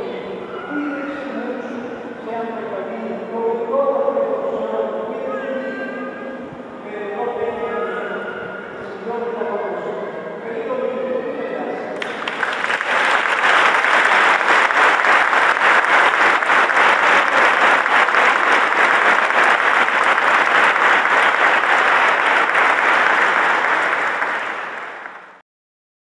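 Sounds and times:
crowd applauding: 12.0 - 25.4.

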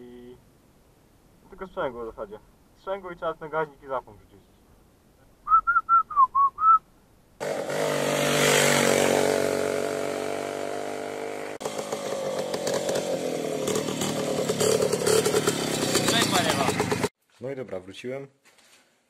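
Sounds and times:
person whistling a tune: 5.5 - 6.8
two-stroke motorcycle engine buzzing: 7.4 - 17.1.

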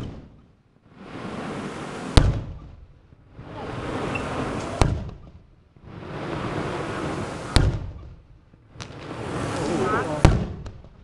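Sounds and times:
firework shells bursting: 0.0 - 11.0
rushing noise: 5.9 - 7.6, 8.9 - 10.3.

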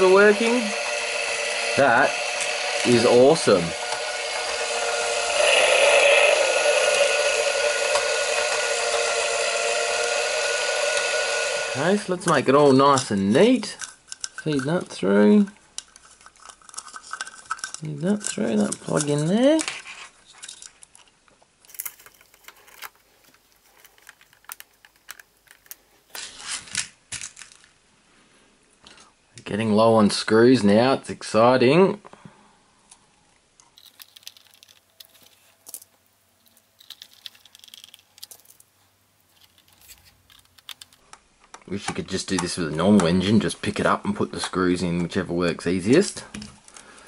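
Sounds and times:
model engine whirring and clattering: 0.0 - 12.0
plastic parts clicking: 13.7 - 19.8, 20.4 - 27.7, 33.6 - 43.2
small screws clattering in tub: 21.7 - 25.8, 33.8 - 38.7, 39.3 - 41.0.

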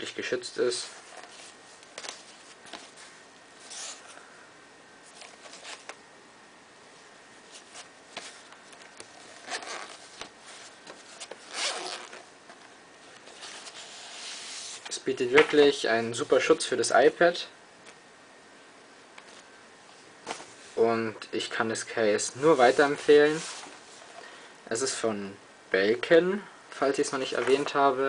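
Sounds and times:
fabric sleeve rustling: 7.4 - 15.0, 22.4 - 24.2
zipper being drawn open: 9.4 - 10.1, 11.4 - 12.2.

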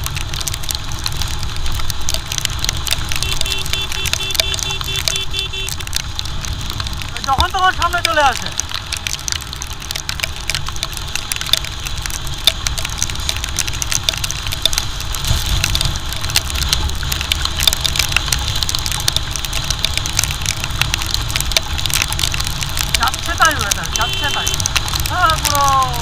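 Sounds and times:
raindrops ticking on camera housing: 0.0 - 26.0
wind rumbling over microphone: 5.8 - 26.0.

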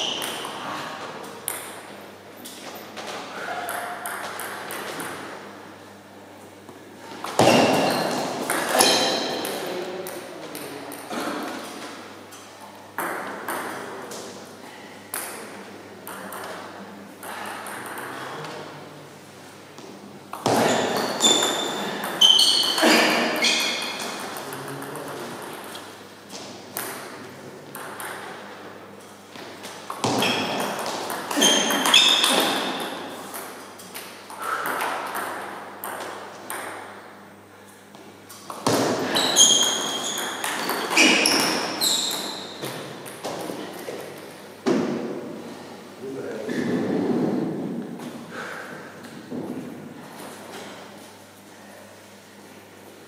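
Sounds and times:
shoe squeaks: 7.4 - 9.4, 20.5 - 24.2, 31.3 - 32.9, 39.0 - 42.7.

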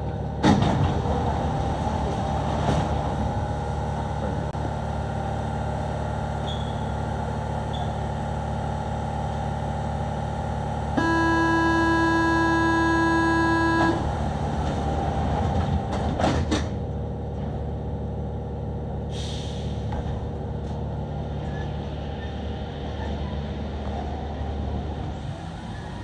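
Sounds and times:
metro train rumbling in tunnel: 0.0 - 26.0
horn-like tone: 11.0 - 14.2
short hiss: 19.1 - 19.8.

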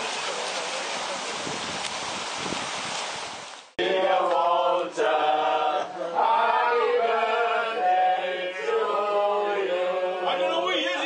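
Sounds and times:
running water: 0.0 - 3.8
wind noise: 0.8 - 3.6
men singing together: 3.8 - 11.0.

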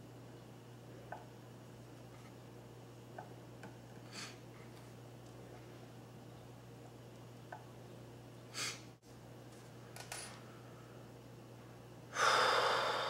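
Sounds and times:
low steady hum: 0.0 - 13.0
faint clicks of small parts: 9.5 - 10.4
person sighing heavily: 12.1 - 13.0.

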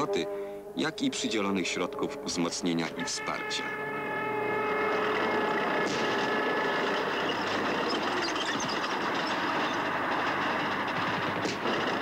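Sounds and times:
tracks clattering: 2.5 - 12.0
diesel engine running: 4.7 - 12.0.

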